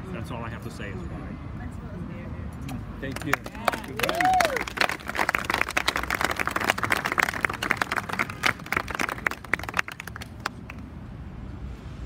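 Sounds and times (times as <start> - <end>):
crowd applauding: 3.1 - 10.8.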